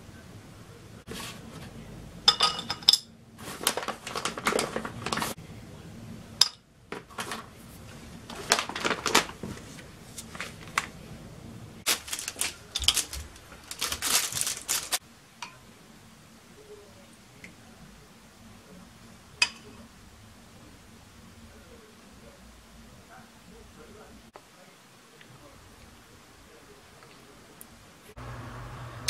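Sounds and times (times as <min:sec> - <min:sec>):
dishes clinking on ceramic plate: 0:02.3 - 0:03.1
wrappers crinkling and tearing: 0:03.4 - 0:05.4, 0:08.2 - 0:11.0, 0:11.9 - 0:15.0.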